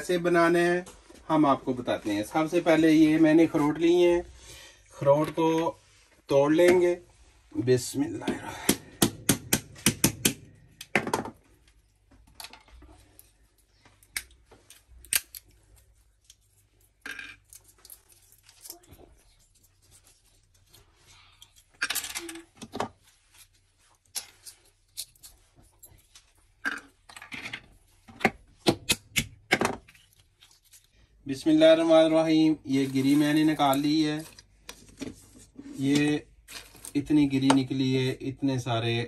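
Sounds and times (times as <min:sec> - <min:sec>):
walnut shells cracking: 0:14.0 - 0:18.9.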